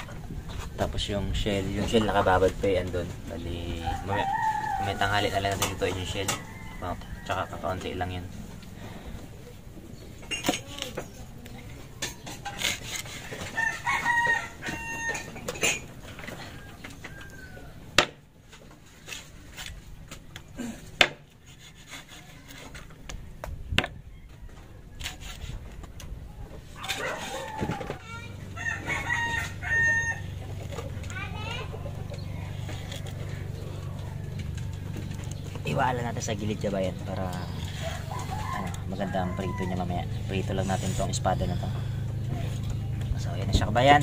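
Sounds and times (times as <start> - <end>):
rooster crowing: 3.8 - 7.9, 13.4 - 18.0, 24.0 - 25.2, 26.7 - 30.7, 37.3 - 40.2.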